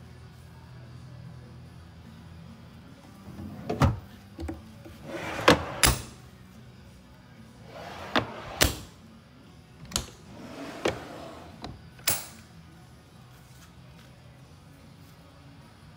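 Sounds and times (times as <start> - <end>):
drawers knocking and clacking: 3.3 - 6.1, 7.7 - 8.9, 9.9 - 11.8
drawer sliding on runners: 3.3 - 6.2, 7.6 - 8.9, 9.9 - 11.8.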